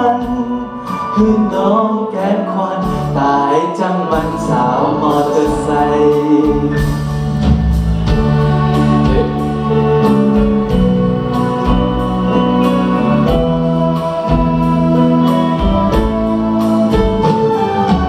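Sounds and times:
organ-like keyboard chords: 0:02.8 - 0:18.0
steady drum beat: 0:04.1 - 0:18.0.

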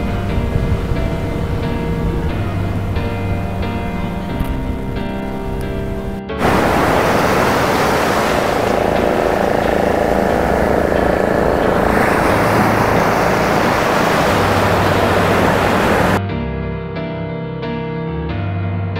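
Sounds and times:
surf breaking on beach: 0:06.4 - 0:16.2.

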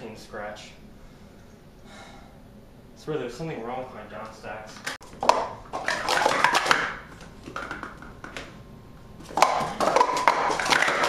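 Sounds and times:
plastic cups clattering: 0:05.0 - 0:08.6, 0:09.2 - 0:11.0.

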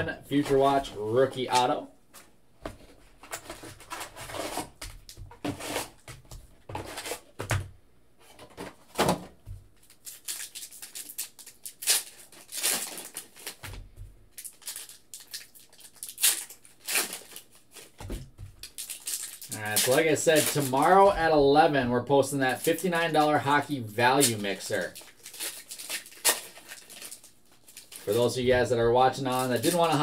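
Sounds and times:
foil wrappers crinkling and tearing: 0:09.8 - 0:13.8, 0:14.4 - 0:18.0, 0:18.6 - 0:21.4, 0:22.3 - 0:30.0.

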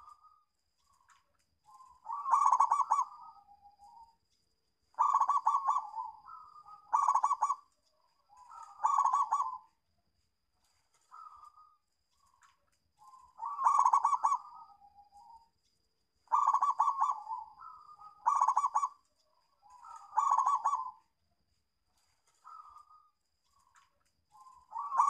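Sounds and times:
dove cooing: 0:01.7 - 0:04.0, 0:05.0 - 0:07.7, 0:08.3 - 0:09.8, 0:13.0 - 0:15.4, 0:16.3 - 0:19.0, 0:19.6 - 0:21.1, 0:22.4 - 0:23.1, 0:24.4 - 0:25.0.

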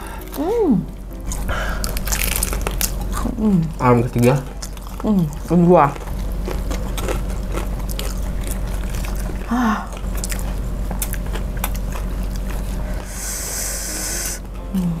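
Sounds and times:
crunchy chewing of fried chicken: 0:01.2 - 0:14.5
short hum: 0:12.8 - 0:15.0
burst of hiss: 0:13.0 - 0:14.4.

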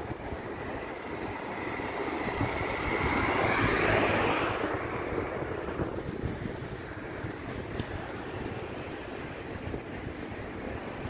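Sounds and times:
vehicle passing: 0:00.8 - 0:07.7.

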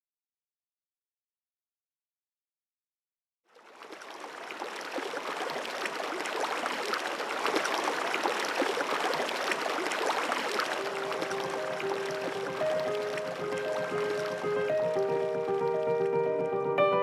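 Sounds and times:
stream water gurgling: 0:03.5 - 0:16.7.

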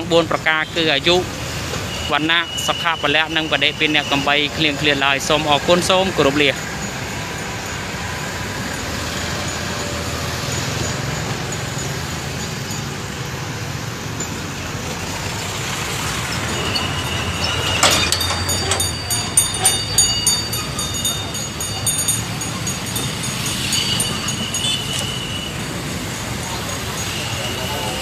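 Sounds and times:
street traffic rumble: 0:00.0 - 0:28.0
bottles clinking and knocking: 0:14.1 - 0:25.4.

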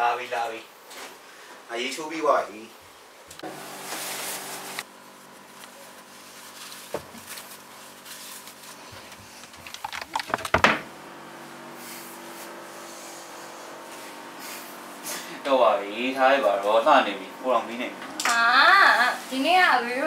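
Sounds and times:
clatter of knocks: 0:09.7 - 0:10.8.

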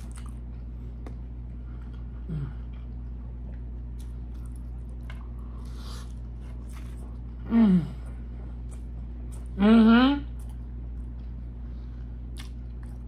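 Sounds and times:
person chewing food: 0:00.0 - 0:09.6, 0:10.3 - 0:13.0
person humming mmm: 0:07.4 - 0:08.1, 0:09.5 - 0:10.4.

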